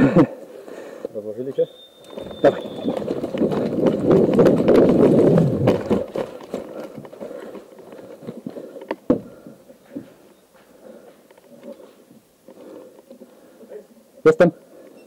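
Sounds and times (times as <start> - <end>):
running footsteps: 1.9 - 13.3
gear rustling: 2.0 - 10.3.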